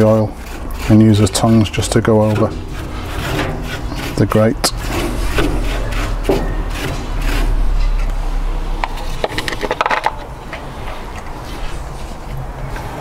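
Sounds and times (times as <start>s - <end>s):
towel scraping barbecue grate: 0.0s - 9.6s
low rumble: 4.6s - 12.5s.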